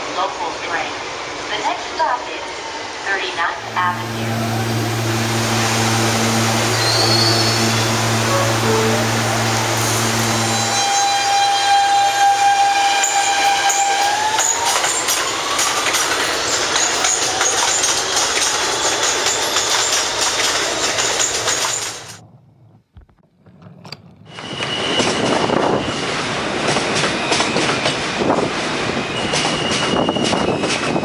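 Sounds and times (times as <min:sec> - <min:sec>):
subway train motor rising: 0:03.3 - 0:22.9
high wheel squeal: 0:03.6 - 0:22.1, 0:24.3 - 0:28.2, 0:28.8 - 0:31.0
wheels clattering on rails: 0:13.0 - 0:31.0.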